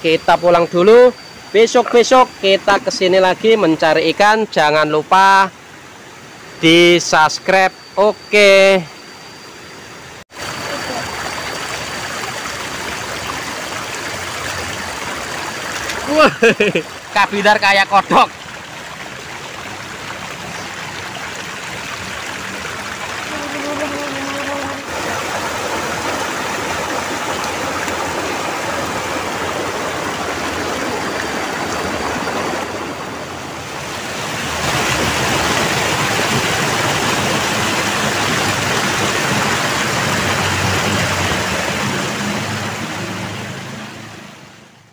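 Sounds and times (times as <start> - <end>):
river water rushing over rocks: 10.4 - 44.9.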